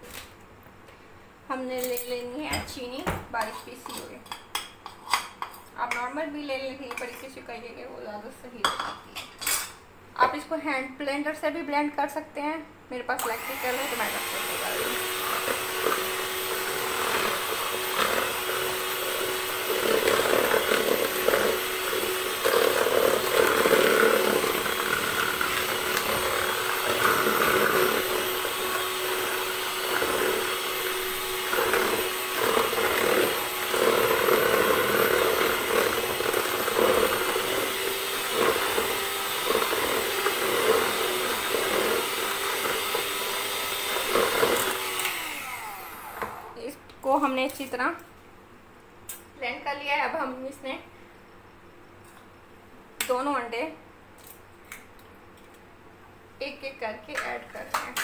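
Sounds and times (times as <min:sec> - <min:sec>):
electric hand mixer humming: 0:13.2 - 0:46.7
beaters churning and scraping: 0:14.0 - 0:46.3.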